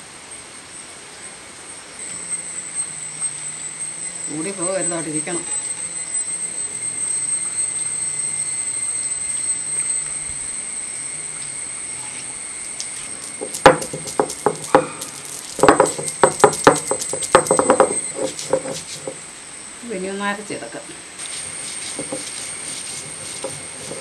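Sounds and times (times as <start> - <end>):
stone roller knocking on grinding stone: 13.3 - 19.2, 21.4 - 24.0.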